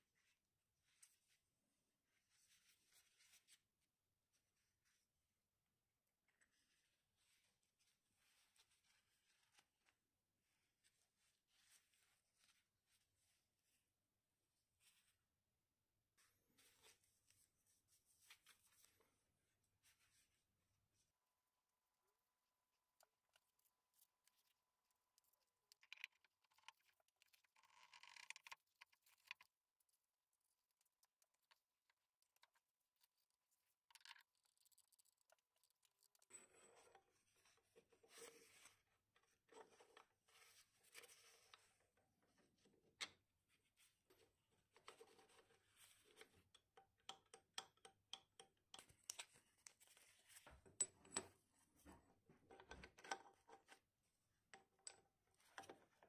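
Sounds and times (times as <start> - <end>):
small metal clicks and scrapes: 23.0 - 37.2.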